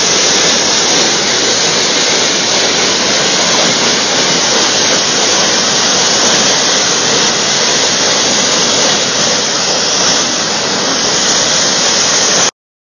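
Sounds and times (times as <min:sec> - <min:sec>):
water gushing from manhole: 0:00.0 - 0:12.5.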